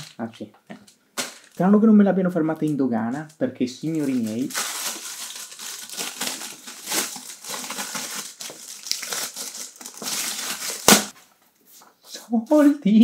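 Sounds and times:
plastic packet crinkling: 0.0s - 1.8s, 2.5s - 11.2s
plastic ripping: 3.9s - 11.2s.

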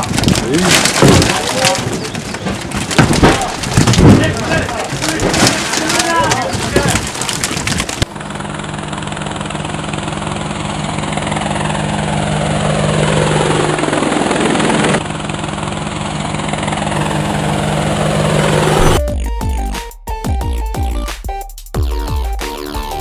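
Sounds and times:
drone rotors whirring: 16.5s - 19.6s
whoosh falling in pitch: 16.9s - 19.1s.

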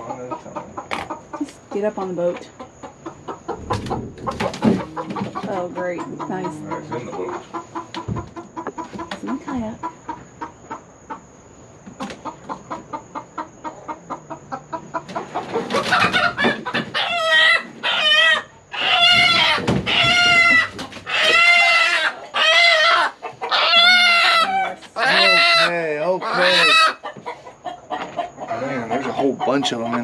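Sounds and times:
chicken clucking: 0.0s - 30.0s
chicken distress squawks: 12.0s - 30.0s.

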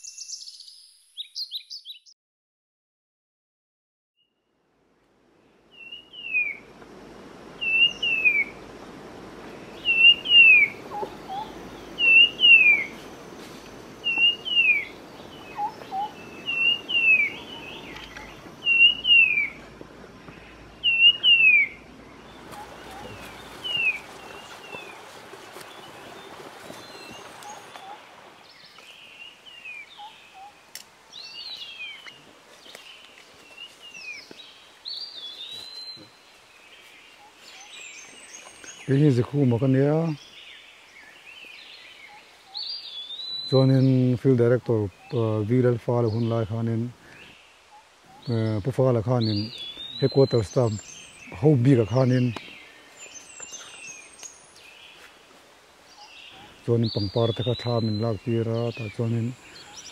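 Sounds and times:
soft forest background: 0.0s - 2.2s, 4.2s - 59.9s
other birds calling: 7.4s - 59.9s
bird whistled call falling in pitch: 14.0s - 14.9s.

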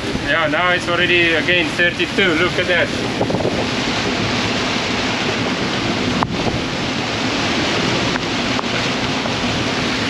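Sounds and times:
sea washing past boat: 0.0s - 10.0s
wind buffeting microphone: 0.0s - 10.0s.

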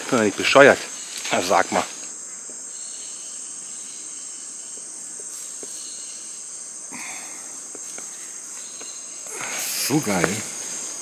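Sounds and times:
insect chorus drone: 0.0s - 11.0s.

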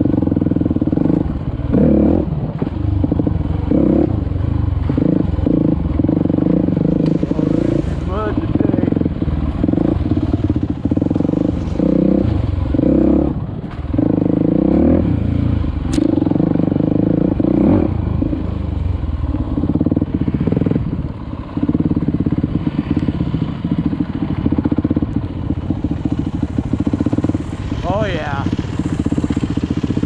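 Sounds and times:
dirt bike engine revving: 0.0s - 18.6s, 19.2s - 30.0s
man talking: 7.2s - 9.0s, 27.8s - 28.6s.

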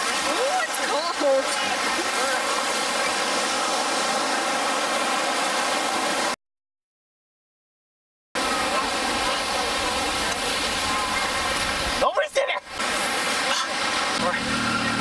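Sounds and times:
surf rushing: 0.0s - 6.4s, 8.4s - 15.0s.

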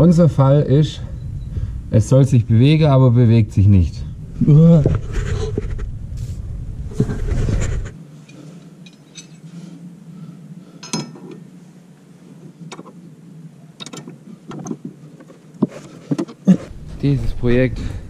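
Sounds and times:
loud low noise: 0.0s - 8.0s, 16.6s - 18.0s
tools clinking on metal: 8.8s - 9.5s, 10.8s - 11.3s.

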